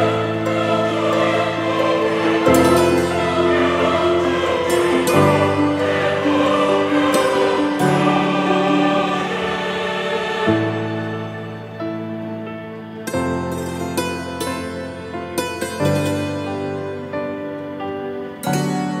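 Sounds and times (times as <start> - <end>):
choir singing held chords: 0.0 - 14.8.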